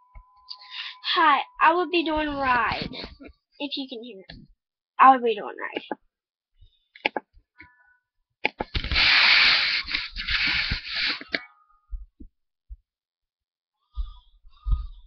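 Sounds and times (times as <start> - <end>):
microphone handling scraping rush: 8.7 - 11.2.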